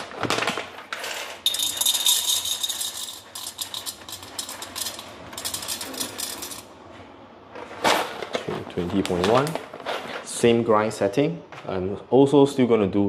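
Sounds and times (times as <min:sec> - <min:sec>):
coffee beans rattling into cup: 0:00.9 - 0:06.7.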